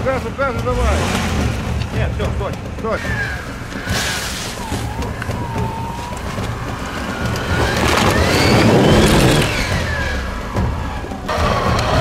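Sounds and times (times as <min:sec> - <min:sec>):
off-road vehicle engine revving: 0:00.0 - 0:12.0.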